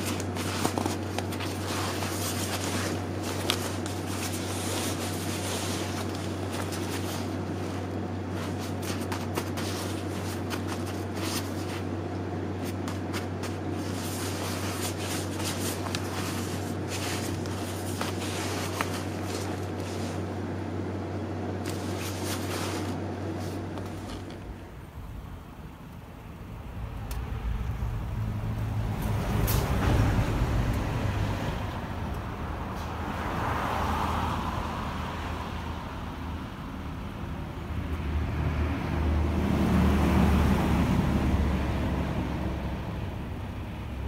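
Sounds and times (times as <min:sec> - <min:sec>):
nylon jacket rustling: 0:00.0 - 0:20.3, 0:21.6 - 0:24.5
steady low hum: 0:00.0 - 0:33.4.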